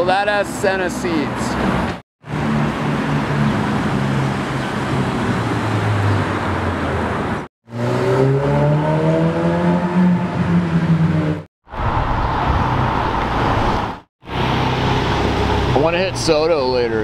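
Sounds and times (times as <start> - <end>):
sports car engine revving: 7.7 - 11.4.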